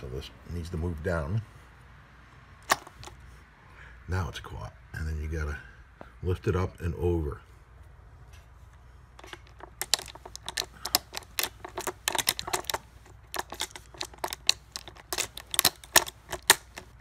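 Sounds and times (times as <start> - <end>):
saw chain clicking and clinking: 9.2 - 17.0.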